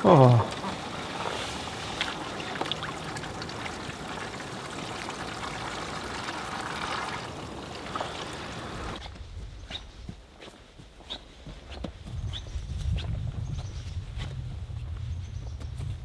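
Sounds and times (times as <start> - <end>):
water pouring into a bathtub: 0.5 - 9.0.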